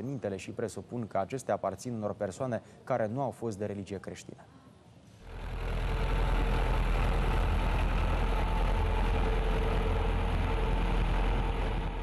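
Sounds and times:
tractor engine running: 0:05.3 - 0:12.0.

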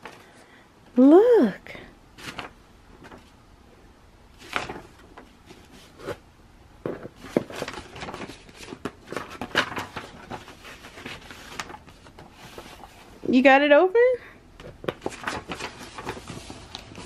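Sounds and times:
paper and cardboard rustling: 0:02.2 - 0:03.4, 0:04.4 - 0:06.2, 0:06.8 - 0:13.4, 0:14.6 - 0:17.0.

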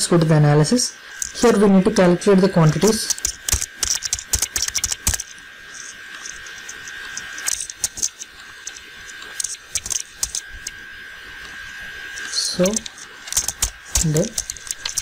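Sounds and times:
keyboard typing: 0:02.8 - 0:10.8, 0:12.2 - 0:15.0.

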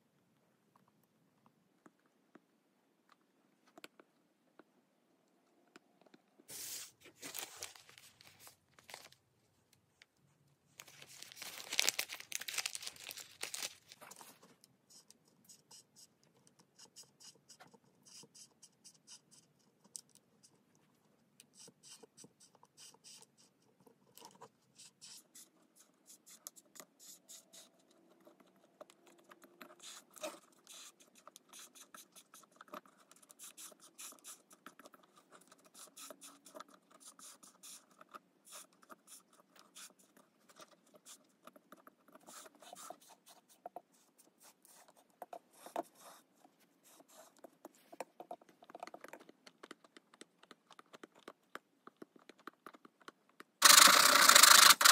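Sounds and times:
plastic packet crinkling: 0:07.1 - 0:09.2, 0:10.8 - 0:14.4
soldering iron scratching plastic: 0:53.6 - 0:54.9.

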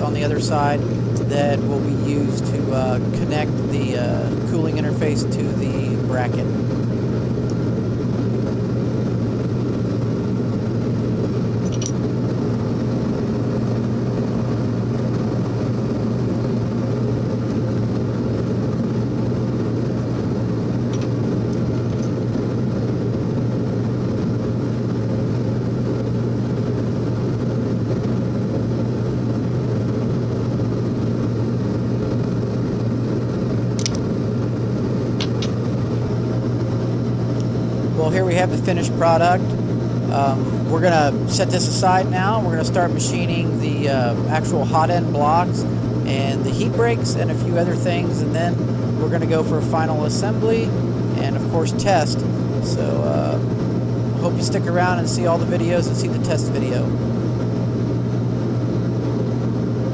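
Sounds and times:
machine motor humming: 0:00.0 - 0:59.9
metal tools clicking: 0:11.7 - 0:11.9.

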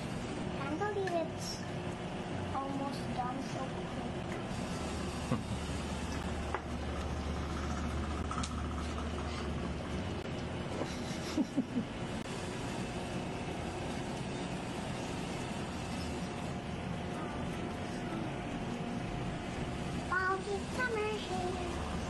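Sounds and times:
low hum: 0:01.5 - 0:22.0.

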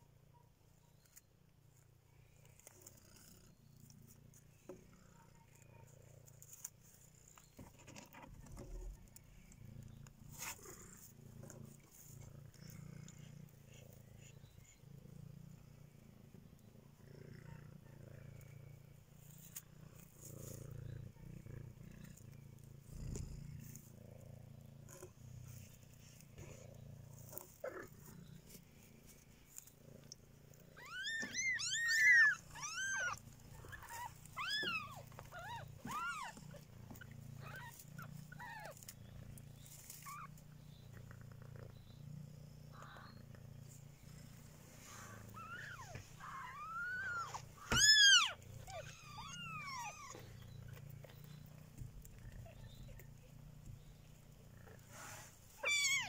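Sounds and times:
cat purring: 0:00.0 - 0:56.0
cat mewing: 0:30.8 - 0:36.4, 0:45.3 - 0:50.2, 0:55.6 - 0:56.0.

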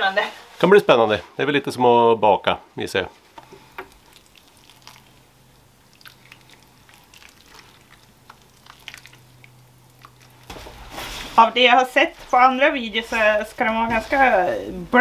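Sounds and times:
low steady hum: 0:00.0 - 0:15.0
crackles and drips: 0:03.3 - 0:11.4
water trickling onto soil: 0:03.9 - 0:10.5.

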